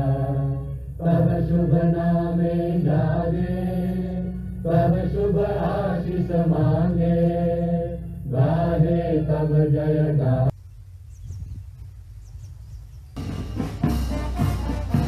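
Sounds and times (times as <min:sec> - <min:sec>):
voices chanting: 0:00.0 - 0:10.5
low drone: 0:00.0 - 0:11.2.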